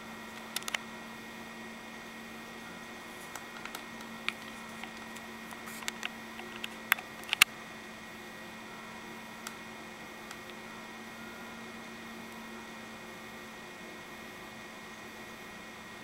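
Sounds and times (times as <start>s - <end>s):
electrical hum: 0.0s - 16.0s
small sharp clicks: 0.4s - 0.8s, 3.3s - 7.5s.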